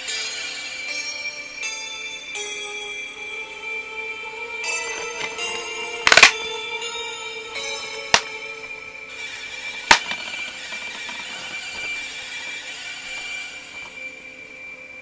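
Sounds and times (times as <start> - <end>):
held musical tones: 2.4 - 15.0
plastic case clicking: 6.1 - 6.6, 8.2 - 8.4, 9.9 - 12.0.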